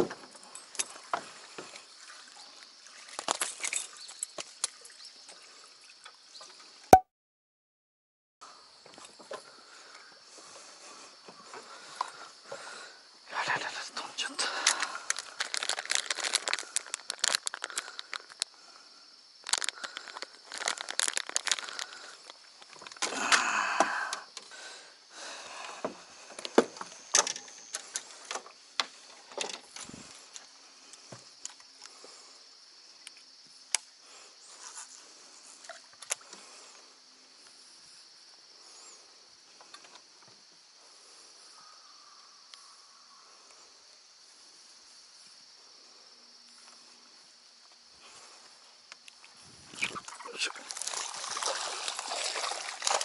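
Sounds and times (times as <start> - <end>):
plastic bag crinkling: 14.6 - 18.5, 19.4 - 23.0.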